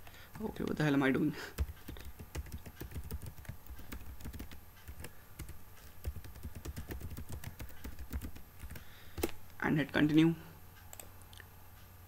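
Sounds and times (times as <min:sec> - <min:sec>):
computer keyboard typing: 0:01.5 - 0:09.4.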